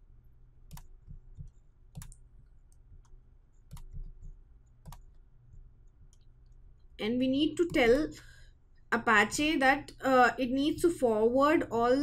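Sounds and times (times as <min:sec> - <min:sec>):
faint low hum: 0:00.0 - 0:12.0
mouse and keyboard clicks: 0:00.7 - 0:06.3.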